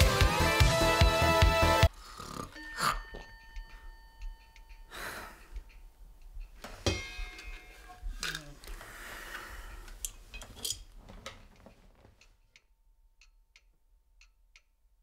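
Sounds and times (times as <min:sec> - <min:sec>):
background music: 0:00.0 - 0:01.9
man breathing out heavily: 0:08.7 - 0:09.9.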